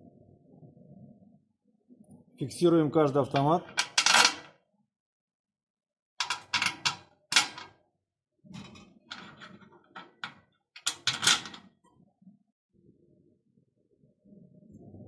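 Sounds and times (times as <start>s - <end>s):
clicks and clatter of hard parts: 3.3s - 4.5s, 6.2s - 7.8s, 8.5s - 11.8s.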